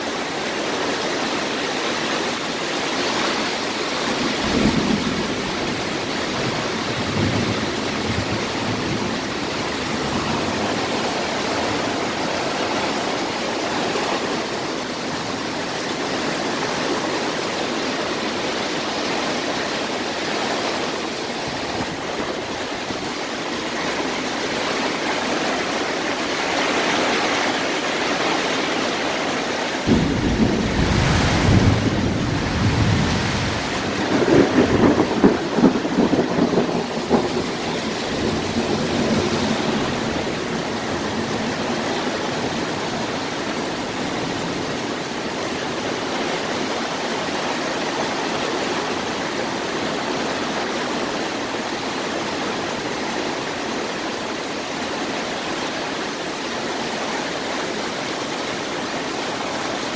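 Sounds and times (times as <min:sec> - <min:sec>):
heavy rain pouring: 0:00.0 - 0:59.9
low rumble of thunder: 0:04.2 - 0:13.0, 0:29.8 - 0:43.6.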